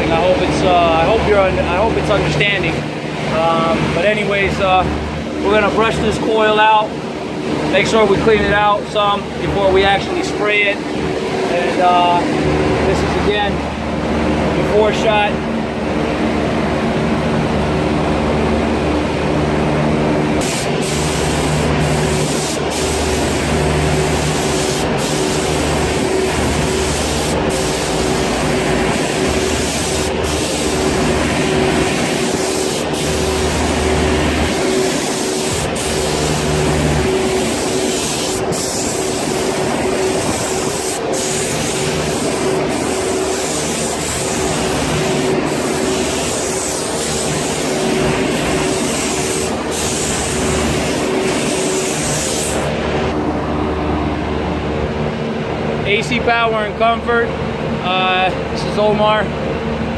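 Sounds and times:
fans humming: 0:00.0 - 0:59.9
spray gun hissing: 0:20.4 - 0:52.8.

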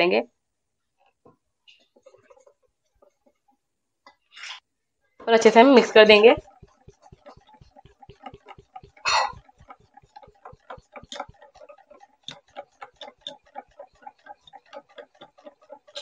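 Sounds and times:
whisk clanking on bowl: 0:05.3 - 0:16.0
wire whisk clicking against bowl: 0:06.0 - 0:16.0.

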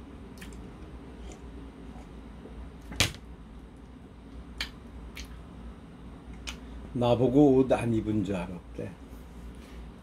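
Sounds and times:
low steady room hum: 0:00.0 - 0:10.0.

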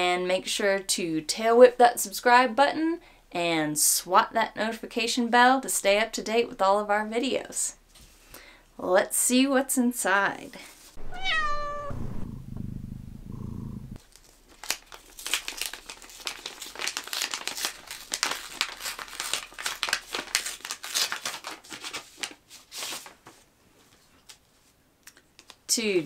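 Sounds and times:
cat purring: 0:11.0 - 0:14.0
paper envelope tearing: 0:14.0 - 0:23.2
paper crinkling: 0:14.0 - 0:24.4.

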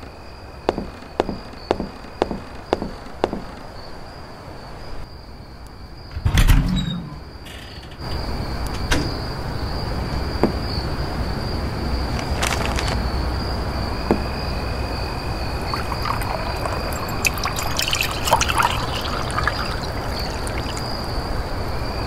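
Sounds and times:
footsteps going down stairs: 0:00.7 - 0:03.8.

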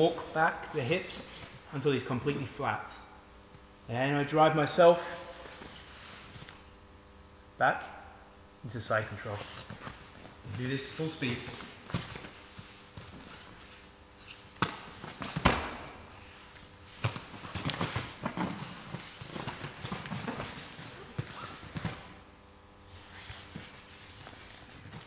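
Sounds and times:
bodies thudding on mats: 0:14.5 - 0:16.1.

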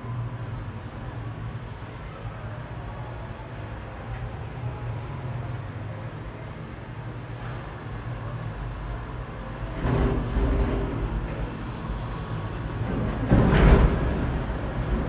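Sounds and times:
gondola lift mechanical rumble: 0:00.0 - 0:15.0
cabin rattling rush: 0:12.8 - 0:15.0.

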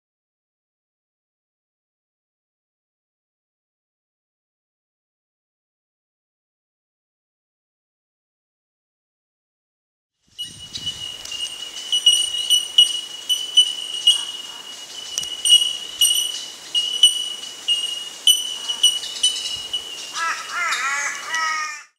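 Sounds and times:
high-pitched insect drone: 0:10.4 - 0:21.6
ringing bird calls: 0:10.4 - 0:21.9.

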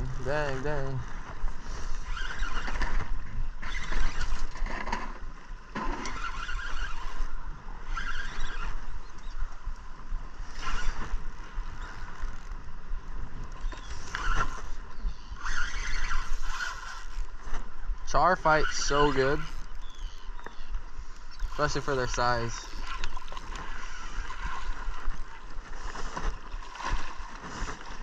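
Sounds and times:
spinning reel cranking: 0:06.1 - 0:07.3, 0:07.9 - 0:08.8, 0:15.4 - 0:17.2
wind on microphone: 0:06.1 - 0:28.0.

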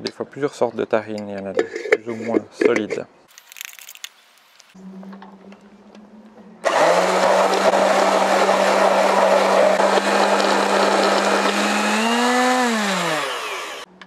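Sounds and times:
stick blender churning paste: 0:06.6 - 0:13.9.

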